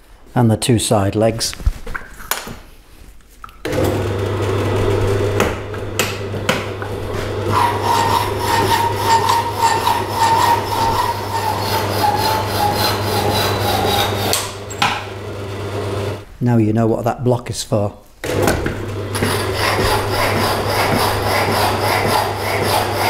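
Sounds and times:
electric motor humming: 0:03.7 - 0:16.2
saw blade rasping on steel: 0:07.5 - 0:15.0, 0:19.2 - 0:23.0.

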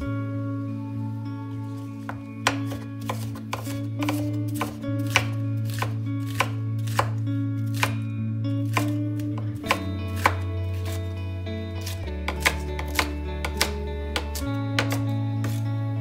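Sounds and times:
knife chopping on wooden board: 0:02.4 - 0:08.0, 0:08.7 - 0:10.4, 0:12.3 - 0:15.6.

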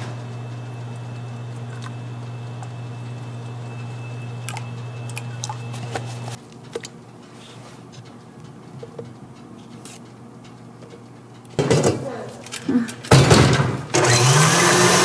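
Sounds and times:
low machine hum: 0:00.0 - 0:07.3.

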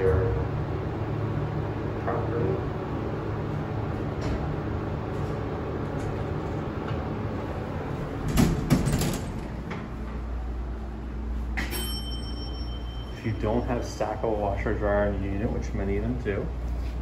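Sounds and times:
elevator humming: 0:00.0 - 0:16.8
sliding doors clattering open: 0:07.9 - 0:10.1.

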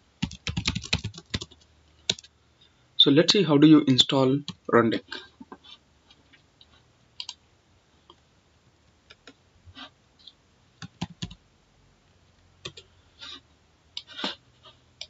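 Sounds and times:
keyboard and mouse clicks: 0:00.2 - 0:02.3, 0:09.1 - 0:09.4, 0:10.2 - 0:11.4, 0:12.6 - 0:12.9.

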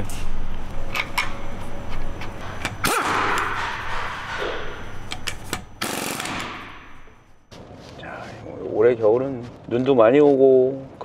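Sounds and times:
pneumatic impact wrench: 0:02.6 - 0:07.2.

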